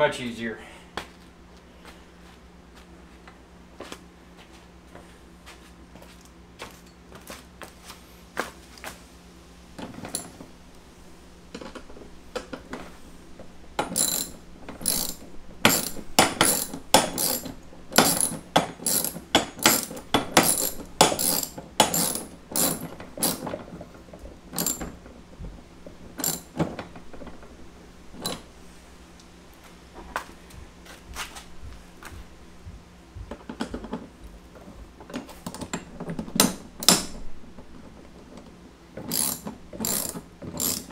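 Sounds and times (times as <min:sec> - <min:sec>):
ratchet wrench clicking: 0:13.8 - 0:23.5, 0:24.6 - 0:24.8, 0:26.2 - 0:26.5, 0:39.0 - 0:40.9.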